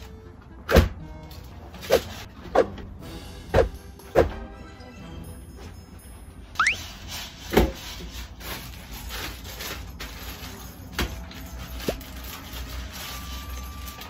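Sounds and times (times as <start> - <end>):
plastic bag crinkling: 8.6 - 14.0.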